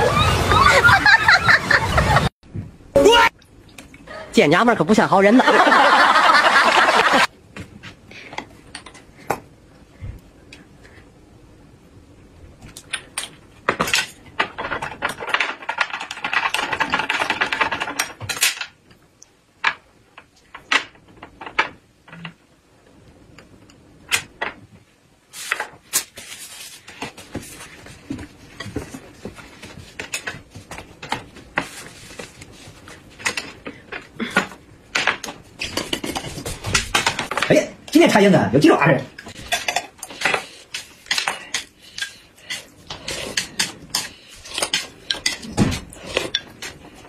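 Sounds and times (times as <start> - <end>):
crackling rustle: 25.3 - 33.6
dishes clicking and clattering: 33.1 - 37.6, 39.2 - 47.0.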